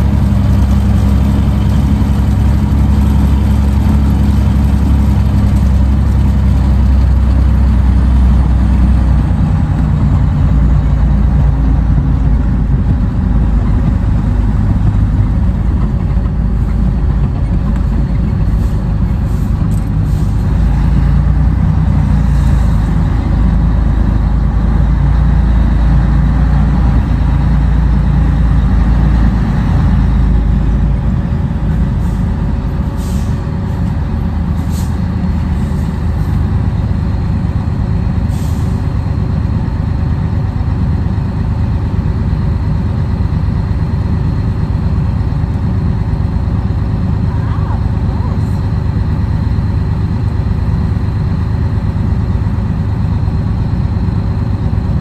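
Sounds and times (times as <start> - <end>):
truck diesel engine running: 0.0 - 55.0.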